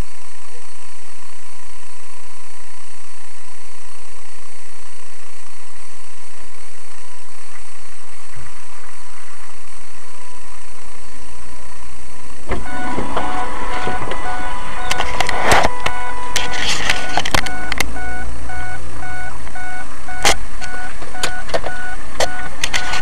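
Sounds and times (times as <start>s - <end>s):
music: 12.5s - 17.6s
constant thin tones: 12.5s - 23.0s.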